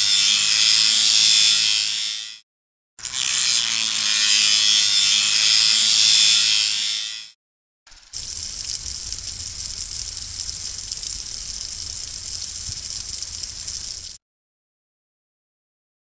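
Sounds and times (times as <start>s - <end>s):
spray nozzle hissing water: 8.1s - 14.2s.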